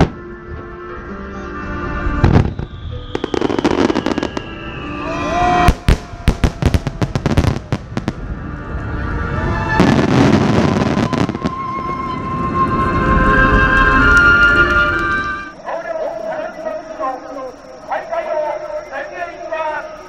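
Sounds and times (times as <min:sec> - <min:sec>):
background music: 0:00.0 - 0:15.6
firework crackling: 0:02.1 - 0:08.4, 0:09.5 - 0:15.3
firework shells bursting: 0:02.2 - 0:04.6.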